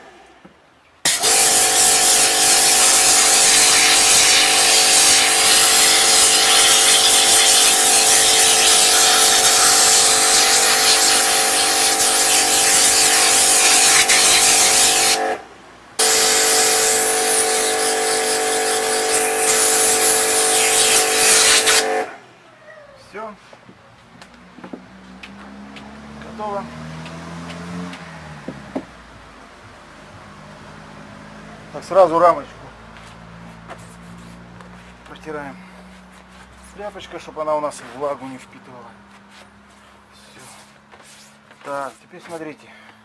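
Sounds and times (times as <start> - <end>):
pressure washer pump hum: 1.0 - 22.2
water jet hissing: 1.1 - 15.4, 16.0 - 22.2.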